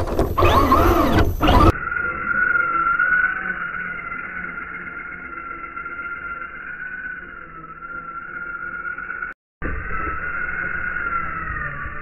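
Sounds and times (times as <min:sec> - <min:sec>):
electric motor whining: 0:00.0 - 0:05.8.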